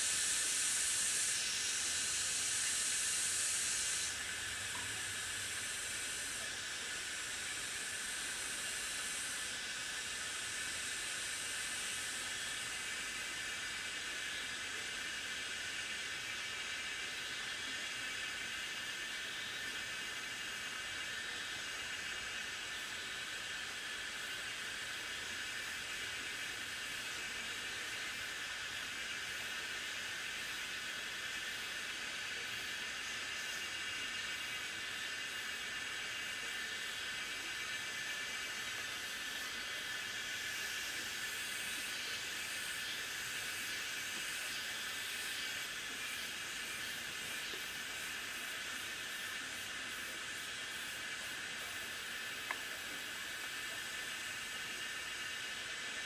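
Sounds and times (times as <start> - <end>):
steady pressurized hiss: 0.0 - 56.0.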